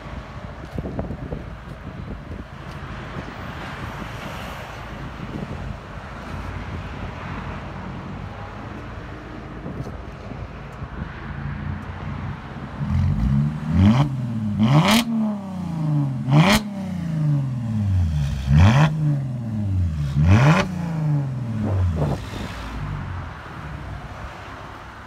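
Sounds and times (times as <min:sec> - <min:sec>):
car engine revving raspy exhaust: 0:12.8 - 0:23.8.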